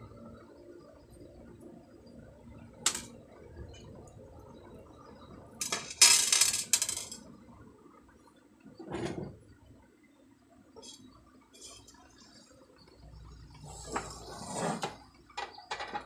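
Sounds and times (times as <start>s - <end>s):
metal screws rattling onto bench: 2.9s - 3.1s, 5.6s - 7.2s.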